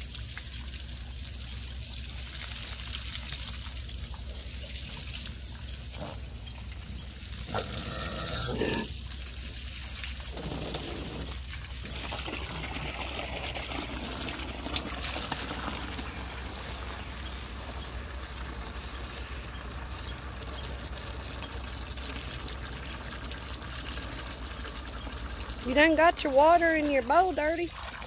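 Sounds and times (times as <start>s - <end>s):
hose water pouring into pool: 0.0s - 28.0s.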